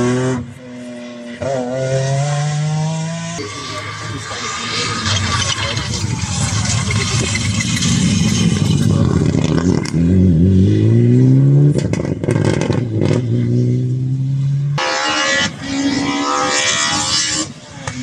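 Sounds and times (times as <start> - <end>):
rally car engine revving: 0.0 - 18.0
exhaust cracks: 3.5 - 10.2.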